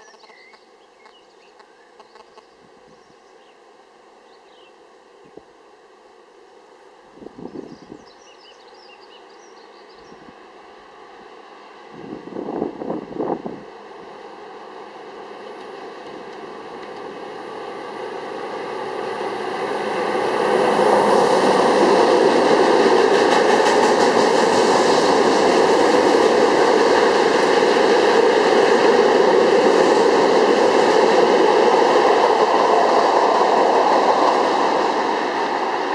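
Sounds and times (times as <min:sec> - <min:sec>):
diesel locomotive passing: 0:00.1 - 0:35.9
freight train wheels rumbling on rails: 0:10.1 - 0:35.9.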